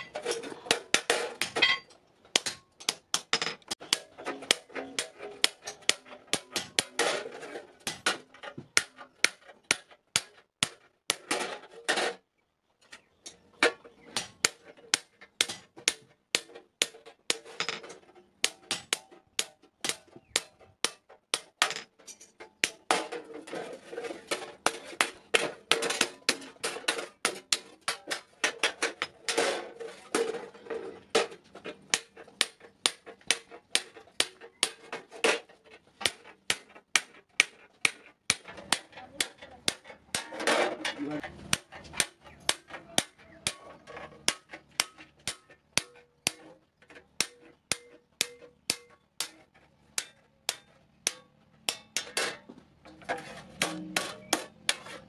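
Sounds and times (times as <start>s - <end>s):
hammer striking chisel on steel: 0.0s - 7.2s, 14.1s - 23.2s, 31.9s - 35.2s, 36.0s - 40.4s, 41.2s - 55.0s.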